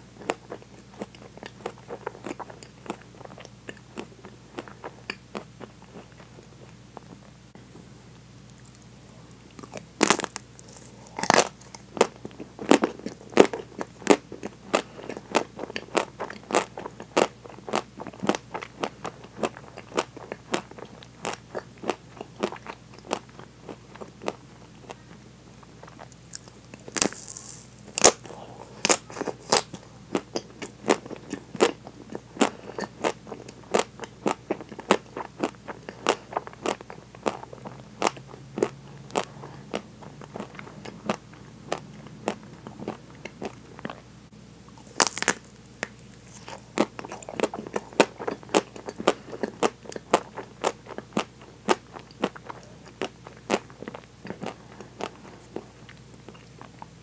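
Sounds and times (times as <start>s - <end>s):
chocolate shell crunching: 9.5s - 25.0s, 25.8s - 44.0s, 44.8s - 56.7s.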